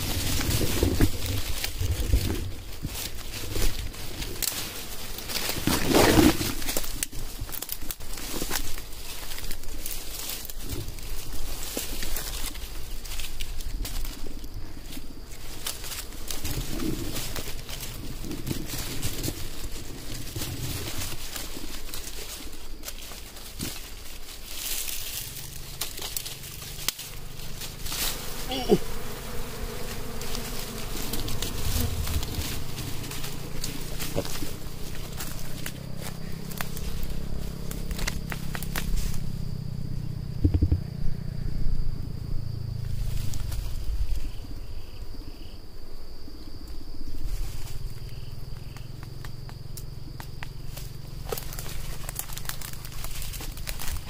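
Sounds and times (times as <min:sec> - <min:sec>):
low rumbling microphone noise: 0:00.0 - 0:15.4, 0:30.7 - 0:44.8
dry twigs and leaves crackling: 0:00.0 - 0:39.6, 0:42.9 - 0:44.9, 0:46.6 - 0:54.0
honeybees buzzing: 0:00.0 - 0:41.3
high insect trill: 0:00.0 - 0:54.0.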